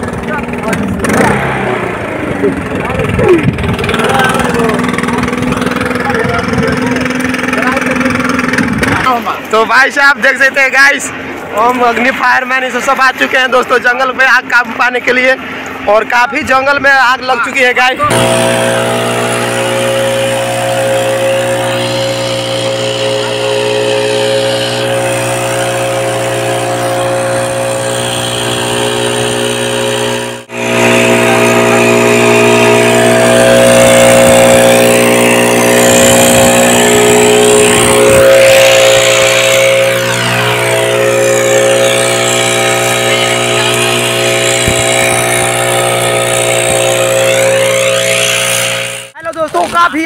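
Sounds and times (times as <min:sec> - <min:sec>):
leaf blower engine running: 0:00.0 - 0:50.0.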